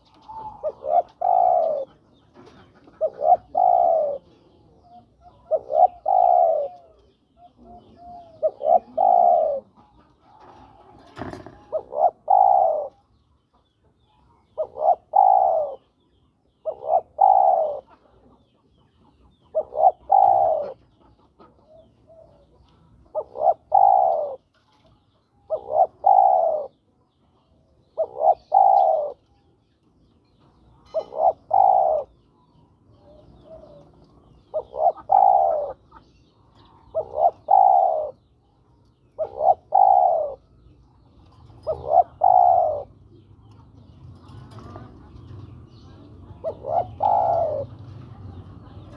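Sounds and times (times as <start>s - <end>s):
dove cooing: 0.0s - 13.1s, 14.5s - 16.0s, 16.6s - 18.2s, 19.5s - 24.8s, 25.4s - 26.8s, 27.8s - 29.3s, 30.8s - 32.3s, 32.9s - 36.0s, 36.6s - 38.3s, 39.1s - 40.6s, 41.4s - 43.0s, 46.2s - 48.1s.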